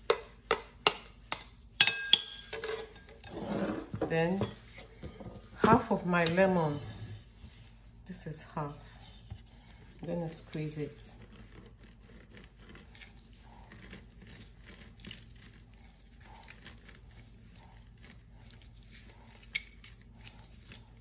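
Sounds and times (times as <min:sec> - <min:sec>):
lemon squelching on plastic juicer: 0:09.2 - 0:21.0.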